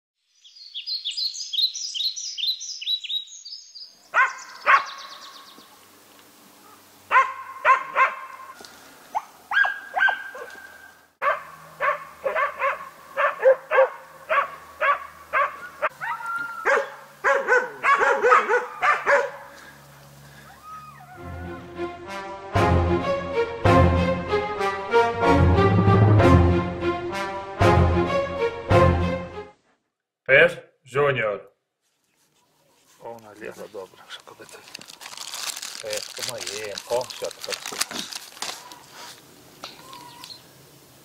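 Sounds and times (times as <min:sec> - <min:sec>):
dog barking: 0:04.1 - 0:05.1, 0:06.6 - 0:19.6.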